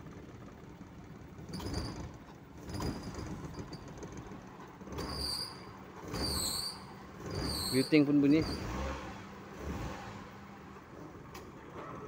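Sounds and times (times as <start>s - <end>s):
short squeaky swells: 5.0s - 8.7s.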